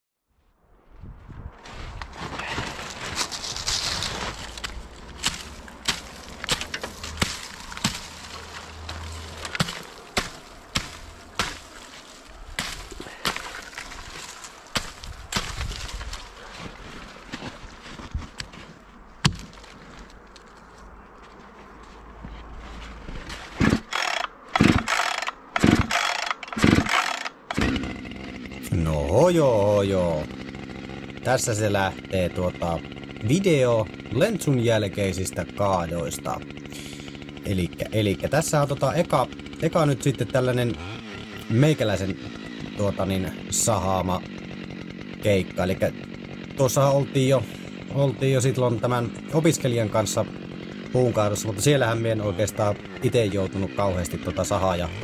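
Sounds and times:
footsteps in snow: 0:00.4 - 0:23.7
chainsaw starter cord yanks: 0:02.3 - 0:16.7, 0:23.6 - 0:55.0.

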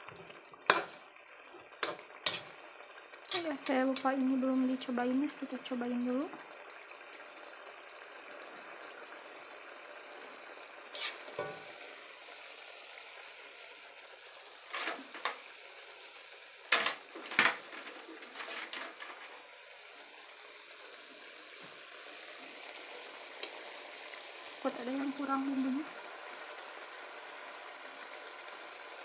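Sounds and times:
sauce simmering hiss: 0:00.0 - 0:16.7, 0:19.2 - 0:29.0
metal spoon scraping a wok: 0:00.7 - 0:01.0, 0:01.8 - 0:02.6, 0:03.3 - 0:04.1, 0:10.9 - 0:11.7, 0:14.7 - 0:15.3, 0:18.2 - 0:19.2.

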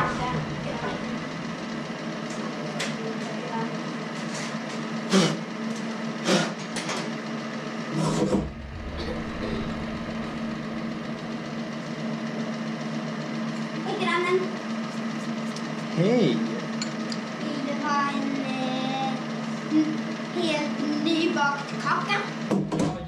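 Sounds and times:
machine motor humming: 0:00.0 - 0:21.1
low thud: 0:08.1 - 0:11.2.

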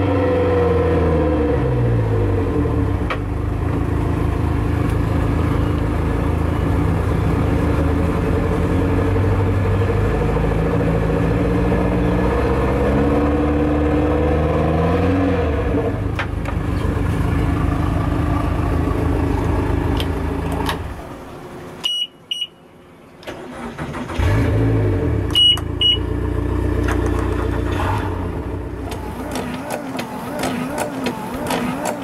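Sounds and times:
short high beeps: 0:21.8 - 0:22.6, 0:25.3 - 0:26.1
outboard engines running: 0:25.3 - 0:32.0.

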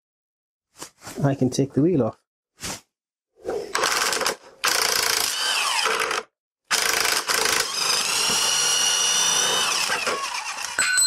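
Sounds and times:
power driver whining: 0:04.6 - 0:11.0.

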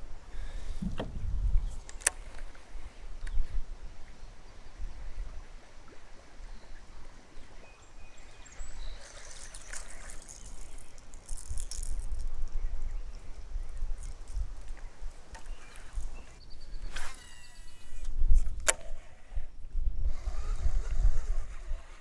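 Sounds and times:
river water lapping: 0:01.8 - 0:12.2, 0:13.1 - 0:22.0
fishing reel clicking: 0:09.6 - 0:12.6
sharp click: 0:17.0 - 0:19.0.

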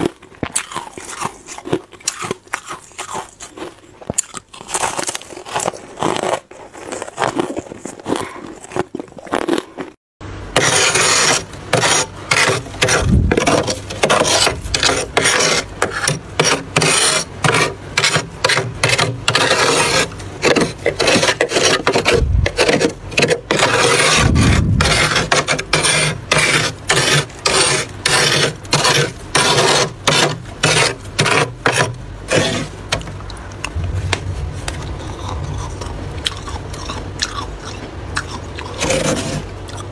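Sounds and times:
frost crunching: 0:00.0 - 0:10.0, 0:10.7 - 0:39.9
frost being scraped: 0:10.6 - 0:32.9, 0:33.8 - 0:37.1, 0:38.3 - 0:39.6.

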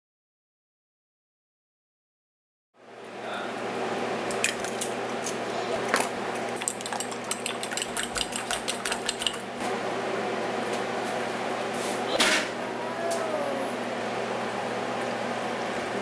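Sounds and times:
steady low hum: 0:02.8 - 0:16.0
fork whisking in glass bowl: 0:06.6 - 0:09.5.

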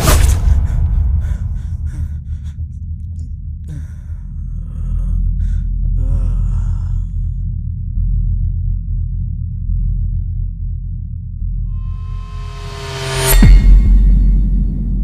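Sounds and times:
deep low drone: 0:00.0 - 0:15.0
man gasping: 0:03.7 - 0:07.4.

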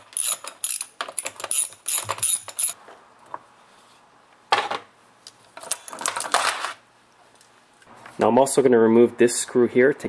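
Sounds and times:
tool rattling on nuts: 0:00.0 - 0:02.8.

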